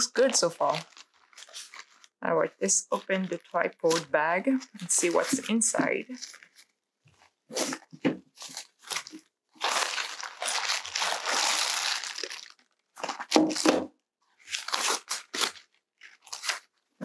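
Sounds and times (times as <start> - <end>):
fabric bag rustling: 0.0 - 2.2, 2.9 - 13.8
plastic wrapping crinkling: 0.0 - 17.0.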